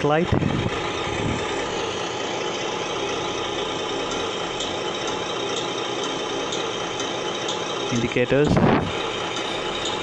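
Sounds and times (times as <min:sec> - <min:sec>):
simulated diesel engine idling: 0:00.0 - 0:10.0.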